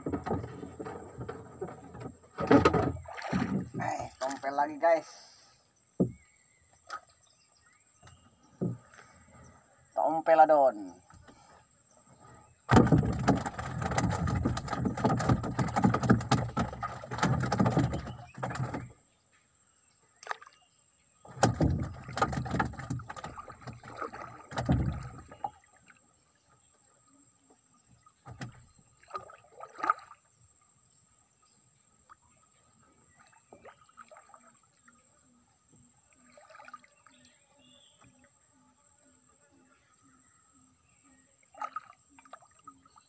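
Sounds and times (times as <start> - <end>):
paddle knocking on wooden boat: 0.0 - 4.2, 6.0 - 6.3, 8.0 - 9.0, 12.7 - 19.0, 21.3 - 25.5, 28.2 - 28.7
paddle splashing water: 0.0 - 9.5, 12.1 - 19.1, 20.1 - 38.4, 40.9 - 43.0.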